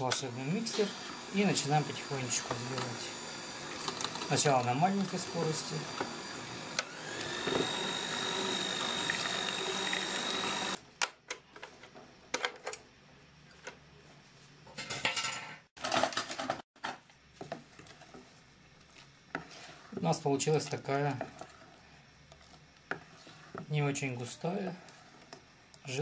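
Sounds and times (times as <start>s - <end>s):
electric hand mixer whining: 0.0s - 10.8s
mixer beaters clicking and knocking: 0.0s - 10.8s.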